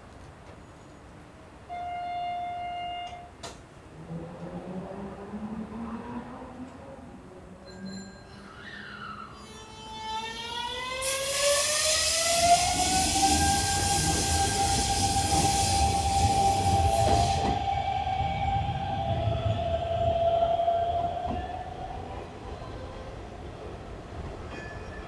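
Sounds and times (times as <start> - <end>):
electric train motors whining: 9.4 - 22.4
train running noise rushing: 10.0 - 25.0.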